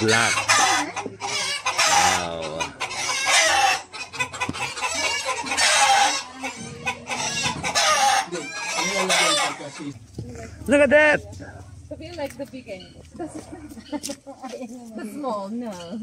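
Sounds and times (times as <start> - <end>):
roosters crowing: 0.0 - 10.0
chickens clucking: 0.0 - 16.0.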